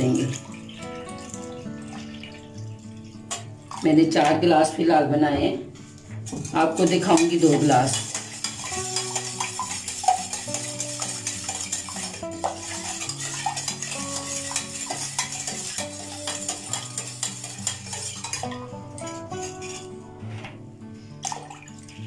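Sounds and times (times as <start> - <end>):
background music: 0.0 - 22.0
metal spoon clinking in pot: 6.3 - 19.9.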